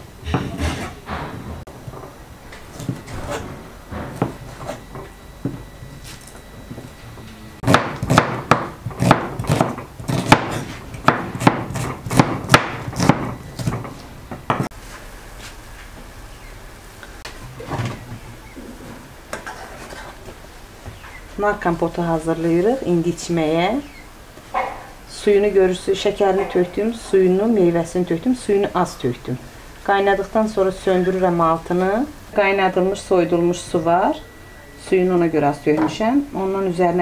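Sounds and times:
knife chopping on wooden board: 7.6s - 13.8s.

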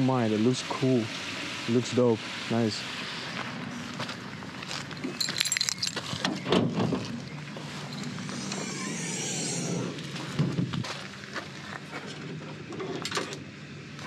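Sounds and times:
car keys jangling: 4.9s - 6.3s, 7.8s - 8.2s.

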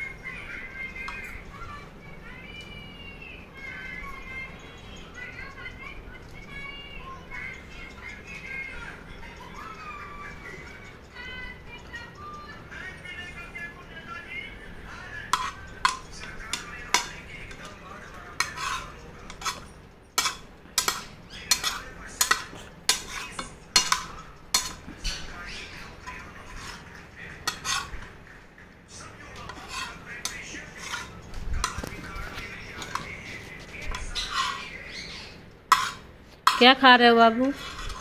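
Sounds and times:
steel spoon scraping a frying pan: 15.0s - 28.2s, 29.0s - 38.0s.

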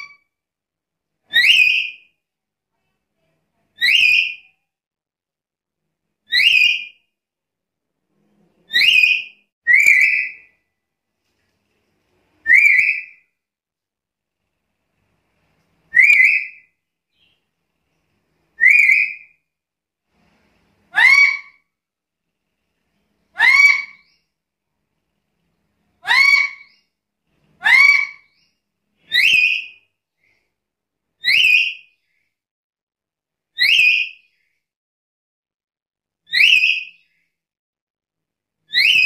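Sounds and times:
bird whistled calls: 8.7s - 10.5s, 12.4s - 13.2s, 15.9s - 17.3s, 18.6s - 19.4s, 29.1s - 29.8s, 33.6s - 34.3s, 36.3s - 37.2s, 38.7s - 39.0s.

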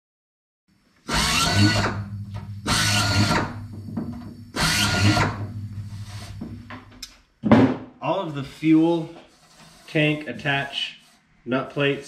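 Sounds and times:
pneumatic air drill bursts: 1.0s - 3.7s, 4.5s - 6.4s.

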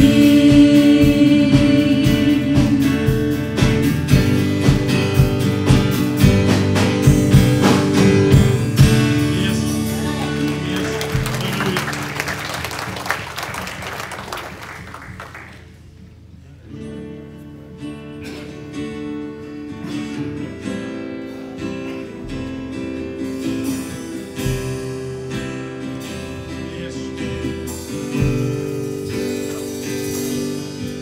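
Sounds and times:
worship band playing: 0.0s - 16.4s, 18.2s - 31.0s
light applause: 9.8s - 15.8s.

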